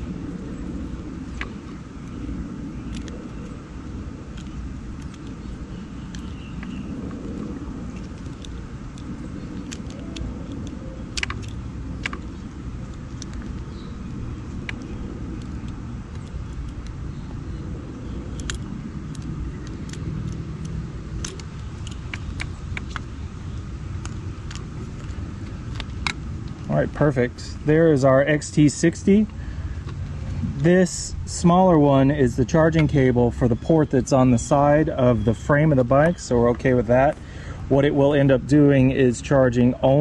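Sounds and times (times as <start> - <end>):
steady low rumble: 0.0 - 40.0
small clicks of knife and connectors: 4.4 - 6.8, 8.0 - 12.4, 18.3 - 26.7.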